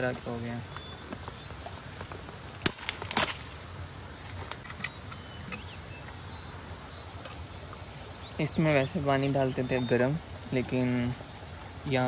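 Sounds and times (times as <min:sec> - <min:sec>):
outdoor background: 0:00.0 - 0:12.0
faint bird chirp: 0:00.1 - 0:01.8, 0:04.7 - 0:12.0.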